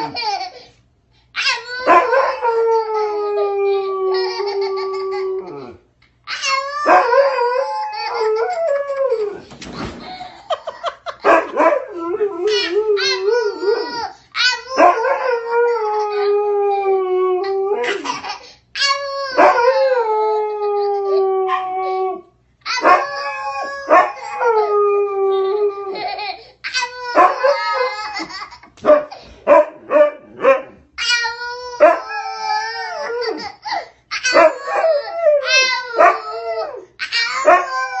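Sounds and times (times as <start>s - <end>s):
child howling: 1.4s - 9.4s, 11.9s - 18.1s, 18.8s - 28.4s, 31.0s - 33.6s, 34.2s - 38.0s
dog howling: 6.8s - 9.4s, 19.3s - 26.1s, 29.9s - 33.5s, 34.3s - 38.0s.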